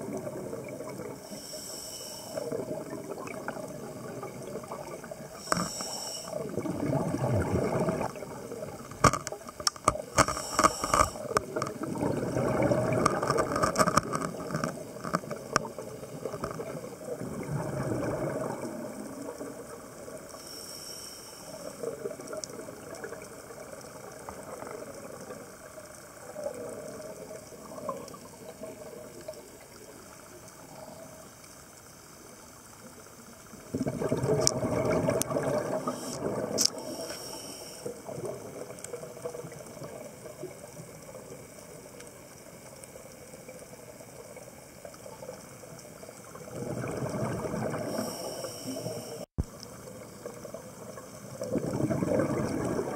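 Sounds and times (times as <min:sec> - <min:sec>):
water gurgle and hiss: 0:00.0 - 0:52.9
diver breathing through regulator: 0:01.3 - 0:02.6, 0:05.4 - 0:06.4, 0:10.2 - 0:11.3, 0:20.4 - 0:21.8, 0:35.8 - 0:38.0, 0:47.8 - 0:49.3
exhaled bubbles bursting: 0:02.4 - 0:05.7, 0:06.3 - 0:20.1, 0:33.7 - 0:36.9, 0:46.3 - 0:48.0, 0:50.3 - 0:52.9
sharp clicks: 0:09.0 - 0:11.7.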